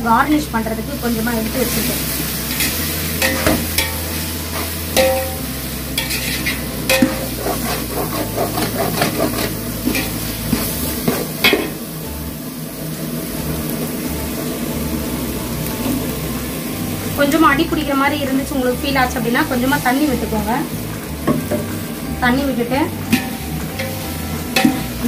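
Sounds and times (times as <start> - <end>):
oil sizzling: 0.0 - 25.0
ladle clinking and scraping pot: 2.4 - 5.4, 6.0 - 11.8, 23.0 - 25.0
loud metal clank: 2.6 - 4.1, 5.0 - 5.4, 6.0 - 7.4, 23.1 - 25.0.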